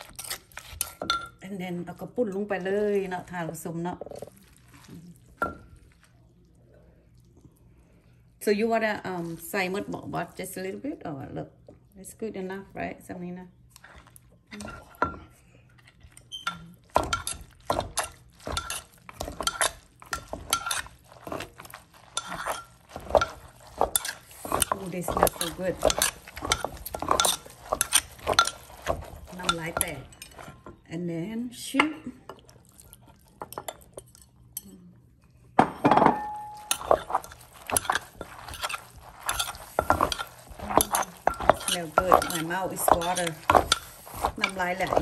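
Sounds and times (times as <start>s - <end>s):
pestle knocking in clay mortar: 36.8s - 45.0s.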